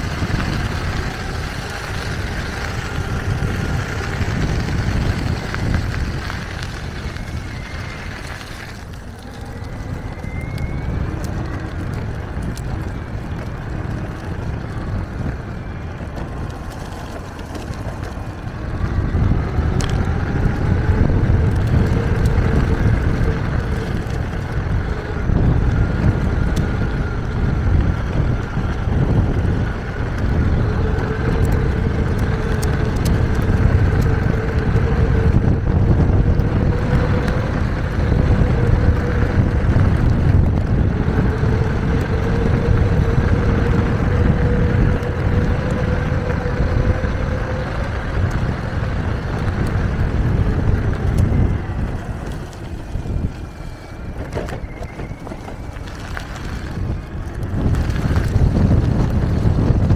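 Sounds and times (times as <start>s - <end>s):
electric motor whine: 0.0s - 59.9s
tyres rumbling over pavement: 0.0s - 59.9s
wind on microphone: 0.0s - 59.9s.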